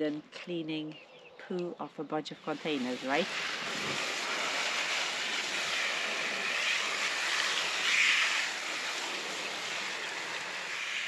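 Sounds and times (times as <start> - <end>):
hose water splashing into plastic drum: 3.2 - 11.0.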